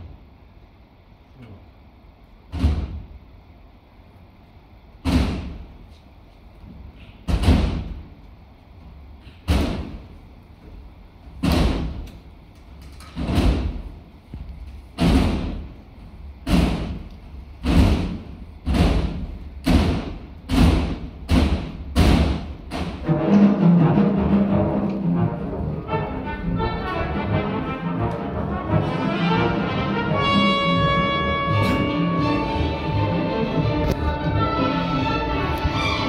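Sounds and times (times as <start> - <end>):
heavy resonant thuds: 5.0 - 5.8, 9.2 - 12.1, 13.1 - 24.8.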